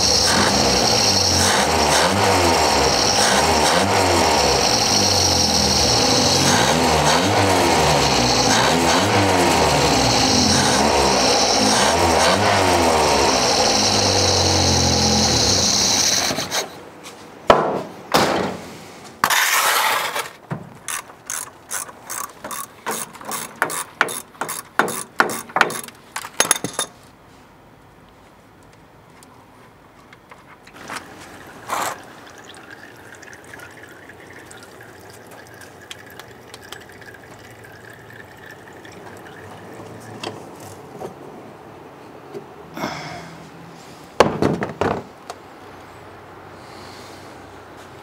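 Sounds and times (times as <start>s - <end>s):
machine running loudly: 0.0s - 16.6s
knocks: 17.5s - 18.6s, 23.6s - 25.9s, 44.2s - 45.1s
ratchet clicking: 20.9s - 25.1s.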